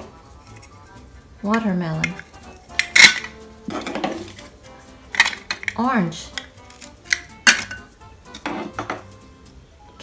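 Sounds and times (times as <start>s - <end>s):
plastic toys clacking: 1.6s - 4.5s, 5.1s - 7.8s.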